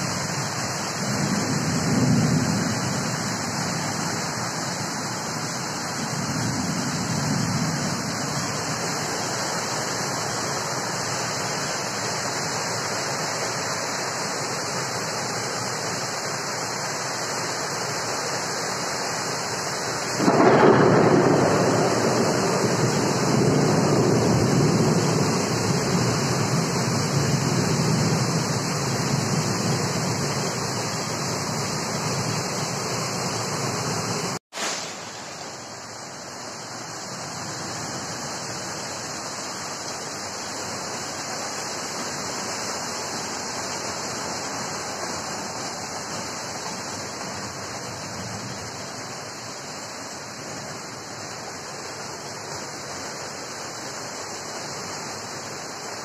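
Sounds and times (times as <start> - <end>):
heavy rain pouring: 0.0 - 56.0
thunder rumbling: 1.0 - 3.3, 20.2 - 30.7.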